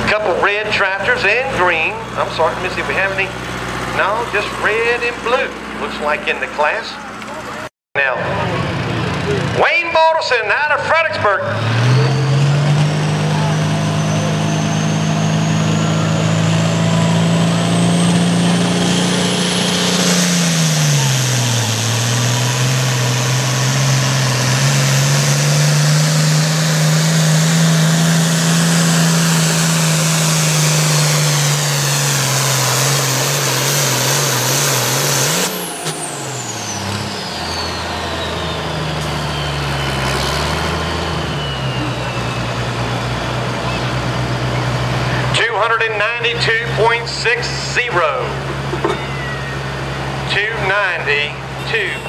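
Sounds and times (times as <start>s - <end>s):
diesel tractor engine under load: 0.0s - 52.0s
turbo whistle: 36.4s - 40.2s, 40.8s - 42.9s, 51.6s - 52.0s.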